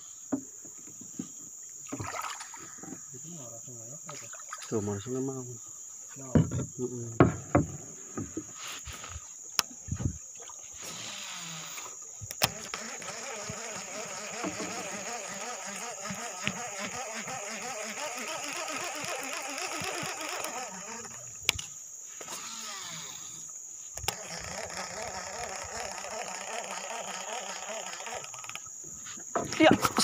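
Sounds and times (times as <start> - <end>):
sharp knocks and clicks: 6.3 - 8.5
high-pitched insect buzz: 7.9 - 29.7.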